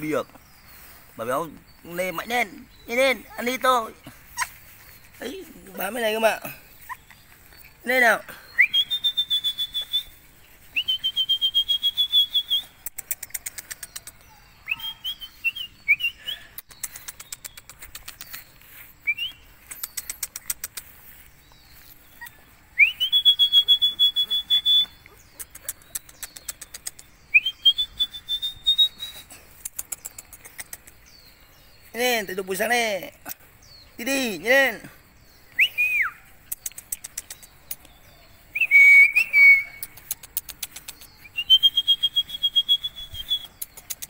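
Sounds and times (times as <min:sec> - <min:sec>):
person whistling: 0:08.6 - 0:10.1, 0:10.8 - 0:12.7, 0:22.8 - 0:24.9, 0:27.4 - 0:29.3, 0:38.6 - 0:39.8, 0:41.4 - 0:43.5.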